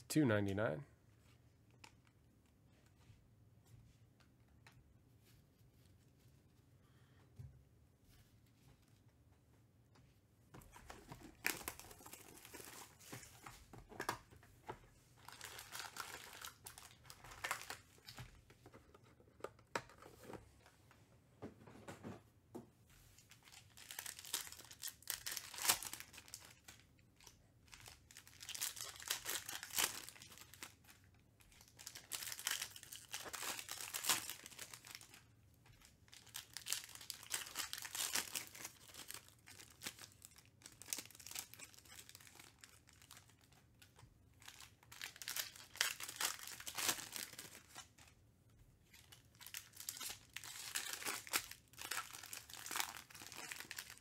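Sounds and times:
foil wrappers crinkling and tearing: 15.2s - 18.2s, 23.3s - 48.1s, 48.9s - 54.0s.

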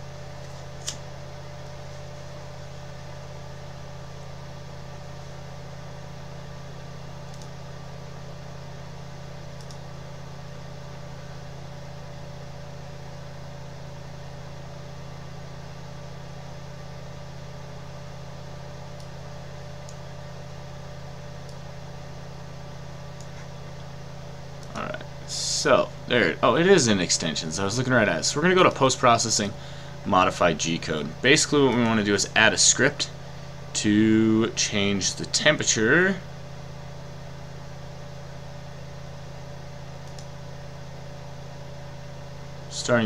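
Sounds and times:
low electrical hum: 0.0s - 43.0s
sharp clicks: 7.3s - 7.6s, 9.6s - 9.8s, 40.0s - 40.3s.

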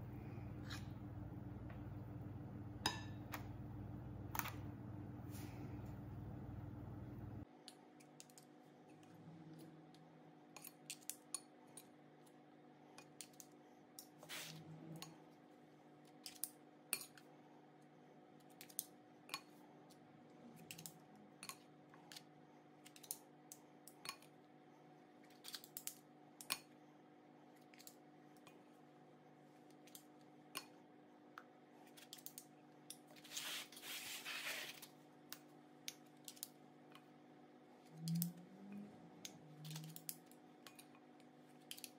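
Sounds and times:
spoon scraping bowl: 0.5s - 1.1s.

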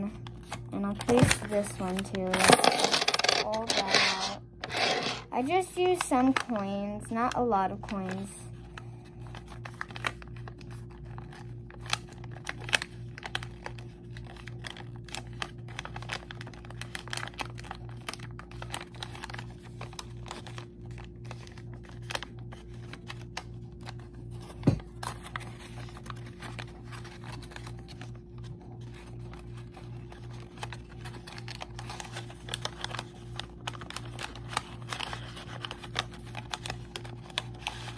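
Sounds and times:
paper being folded by hand: 3.5s - 37.9s.

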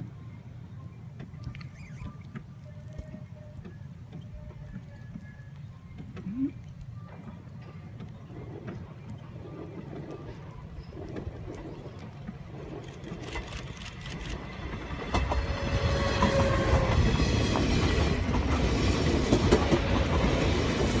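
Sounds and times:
electric train passing at speed: 6.9s - 21.0s.

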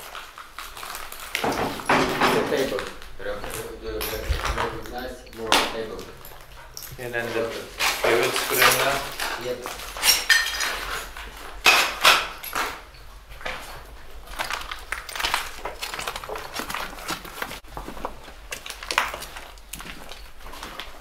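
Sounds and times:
hard objects clinking and knocking: 0.0s - 21.0s.

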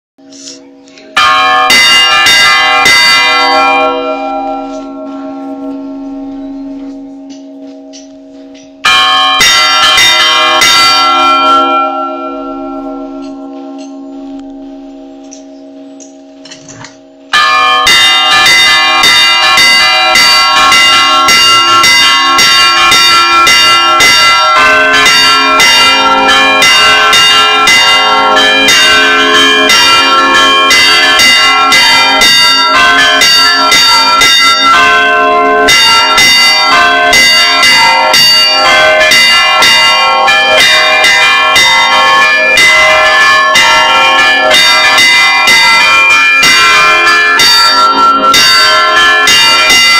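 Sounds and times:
church bells pealing: 0.2s - 49.9s.

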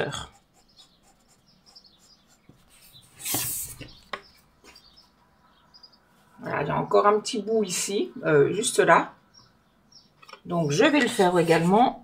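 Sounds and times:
marker tip squeaking on card: 0.3s - 4.2s.

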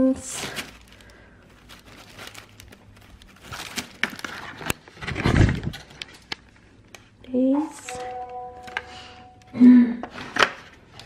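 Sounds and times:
plastic bag rustling: 0.0s - 6.7s.

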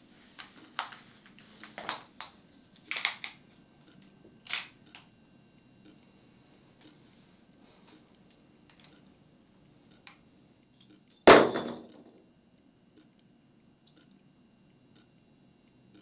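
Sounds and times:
knife clattering on hard floor: 11.1s - 12.0s
clock ticking: 14.9s - 15.1s.

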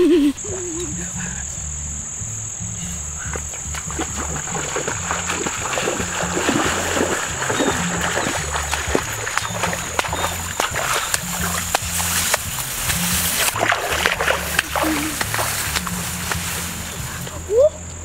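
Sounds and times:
background music with low beat: 0.0s - 18.0s
tall grass crackling and swishing: 3.2s - 17.6s.

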